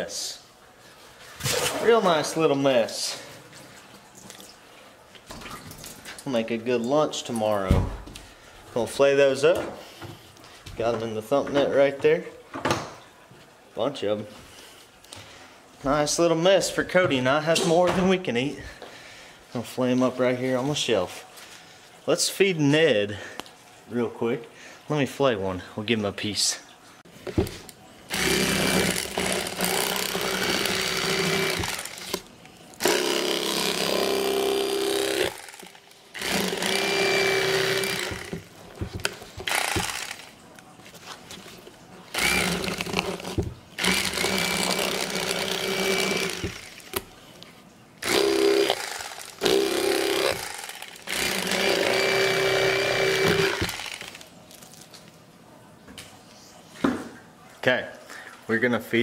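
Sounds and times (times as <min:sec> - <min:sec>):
electric fillet knife buzzing: 0:28.1 - 0:40.4, 0:42.1 - 0:47.0, 0:48.0 - 0:54.3.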